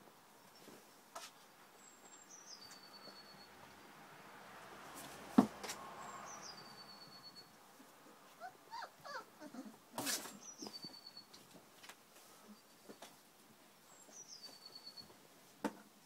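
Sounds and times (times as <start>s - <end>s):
puppies squeaking and whimpering: 8.4s - 11.3s.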